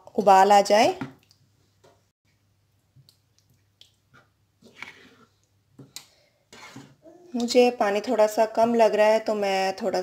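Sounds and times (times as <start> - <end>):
spatula scraping a pan: 4.2 - 5.4, 6.5 - 7.0.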